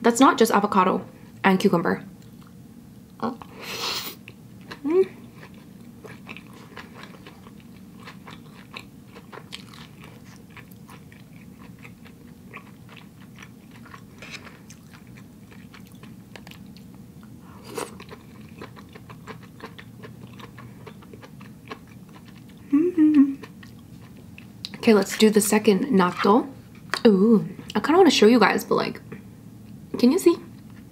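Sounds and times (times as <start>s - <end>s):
steady low hum: 0.0s - 30.9s
close-miked chewing: 4.2s - 22.8s, 23.4s - 25.2s.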